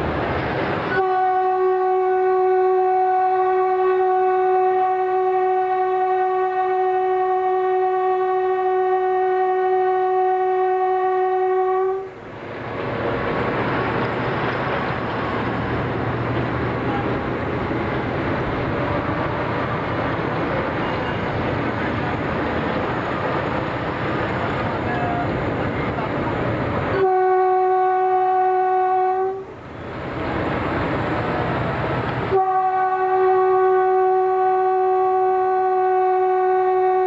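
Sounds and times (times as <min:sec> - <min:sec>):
train running: 0:00.0 - 0:37.0
train horn blast: 0:00.9 - 0:12.2, 0:26.9 - 0:29.6, 0:32.3 - 0:37.0.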